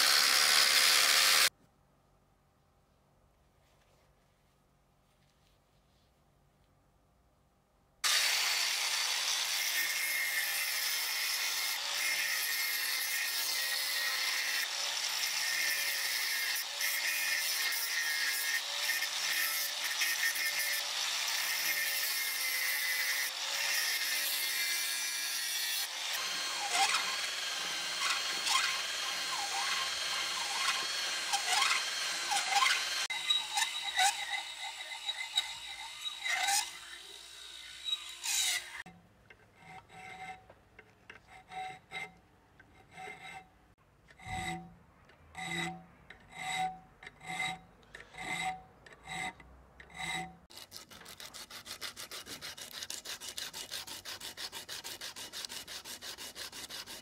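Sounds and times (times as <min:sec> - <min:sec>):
angle grinder cutting steel: 0:00.0 - 0:01.5, 0:08.0 - 0:38.9, 0:44.2 - 0:44.8, 0:45.4 - 0:57.0
file rasping on steel: 0:08.0 - 0:44.8, 0:45.4 - 0:57.0.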